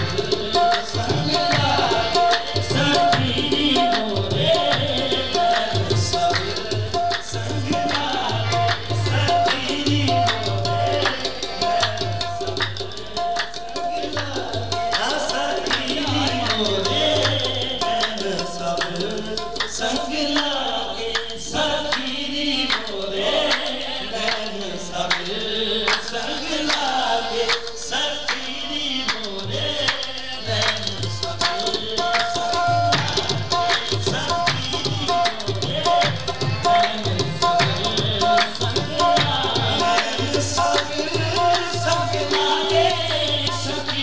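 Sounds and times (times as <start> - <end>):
hand drums beat: 0.0 - 19.9, 30.5 - 44.0
man singing into a microphone: 0.0 - 44.0.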